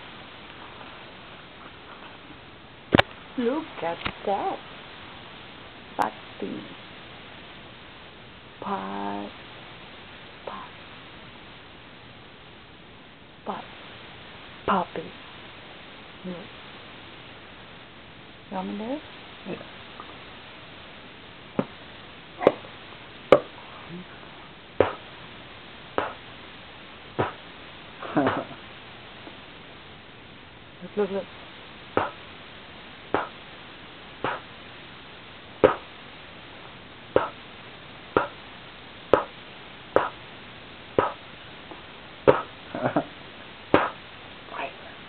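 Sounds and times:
person making lip pops: 26.0 - 26.2, 27.2 - 27.4, 33.2 - 33.4, 34.2 - 34.4, 35.6 - 35.9, 37.2 - 37.4, 38.2 - 38.4, 40.0 - 40.2, 41.0 - 41.2, 42.3 - 42.5, 43.8 - 44.0.

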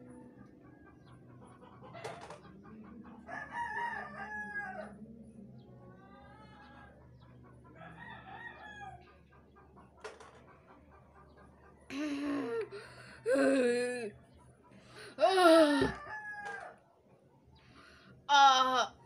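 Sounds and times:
rooster crowing: 3.3 - 4.9, 15.4 - 16.8.

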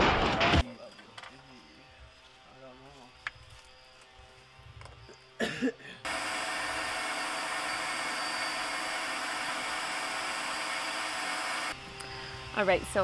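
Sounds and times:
power drill drilling: 6.1 - 12.8.

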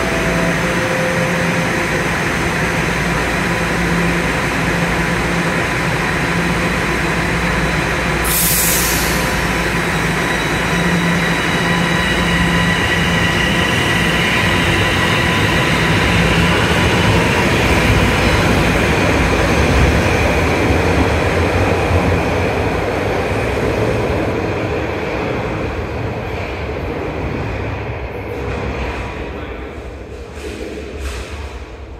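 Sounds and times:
subway train accelerating: 0.0 - 31.9
short air hiss: 8.3 - 9.3.

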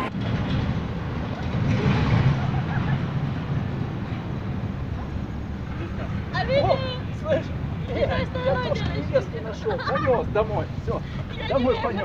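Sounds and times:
street traffic: 0.0 - 12.0
wind rumble on microphone: 0.0 - 12.0.

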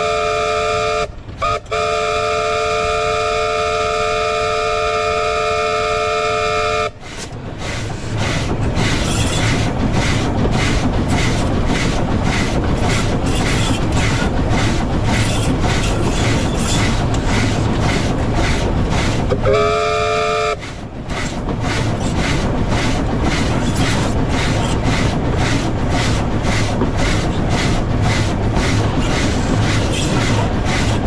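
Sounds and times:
steam whistle: 0.0 - 7.0, 19.4 - 20.6
steam locomotive chugging: 0.0 - 31.0.

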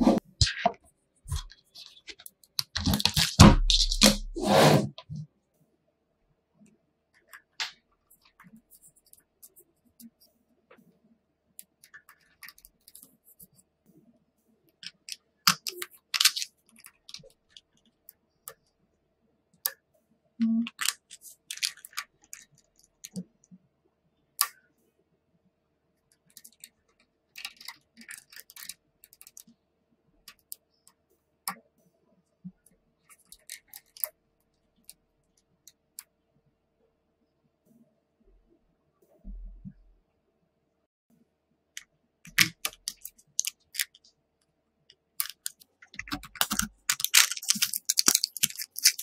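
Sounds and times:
magnet balls clicking together: 45.2 - 49.0.

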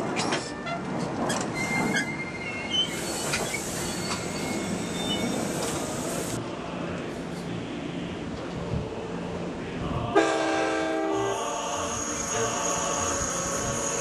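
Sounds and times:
train rumble: 0.0 - 14.0
train wheels squealing: 0.2 - 6.3, 11.3 - 14.0.

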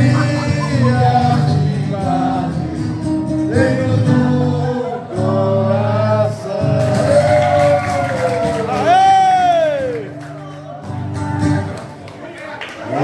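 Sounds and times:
person singing: 0.0 - 8.0
guitar: 0.0 - 13.0.

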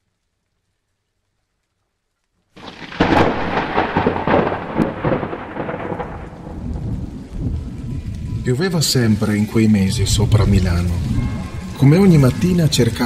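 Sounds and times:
rain: 0.0 - 13.0
thunderclap rolling rumble: 2.6 - 13.0.

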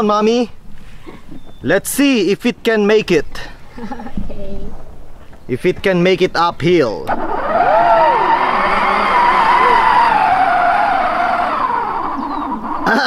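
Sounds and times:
toy car electric motor whining: 7.1 - 13.0.

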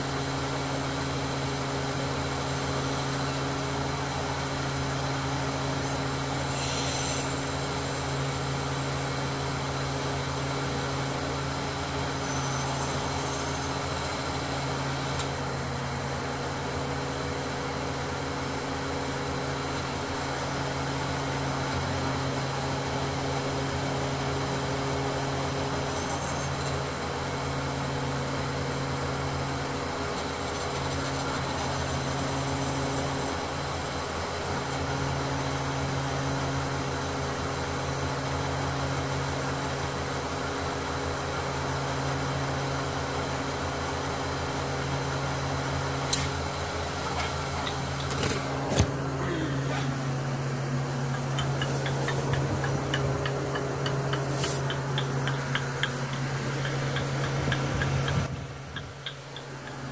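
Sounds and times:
crane diesel engine droning: 0.0 - 59.9
small click: 46.1 - 46.3.

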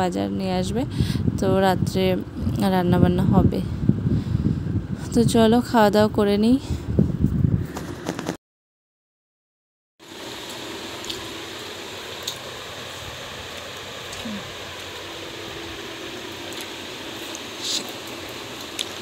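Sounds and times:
room noise hiss: 10.0 - 19.0.

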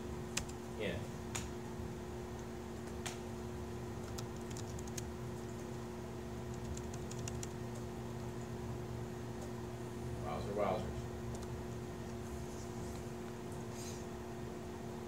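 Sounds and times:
steady low hum: 0.0 - 15.0
laptop keyboard typing: 0.4 - 0.6, 4.0 - 5.1, 6.4 - 7.8, 11.3 - 11.6.

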